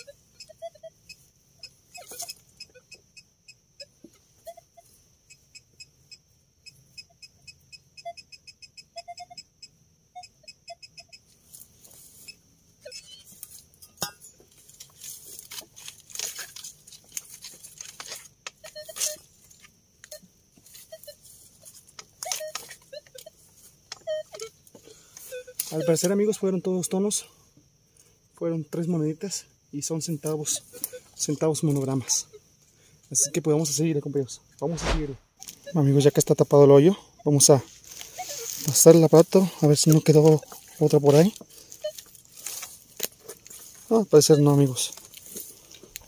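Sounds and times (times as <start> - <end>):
soil and leaves scraping: 14.6 - 18.3, 39.8 - 44.0.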